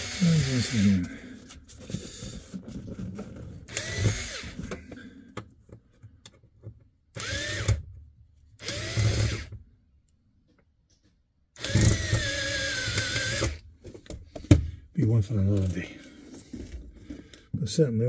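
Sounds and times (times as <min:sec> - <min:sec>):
drill driving screws: 0:00.0 - 0:01.1, 0:03.7 - 0:04.8, 0:07.2 - 0:07.9, 0:08.6 - 0:09.6, 0:11.6 - 0:13.6.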